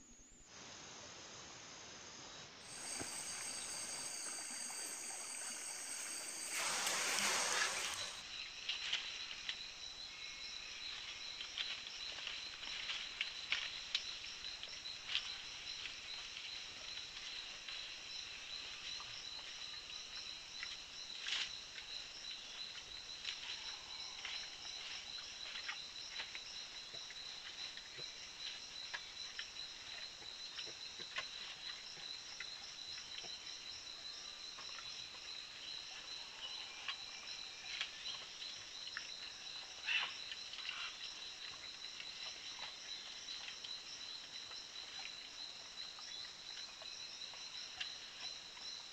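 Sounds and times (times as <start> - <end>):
insect chorus whining and trilling: 2.6 - 13.0.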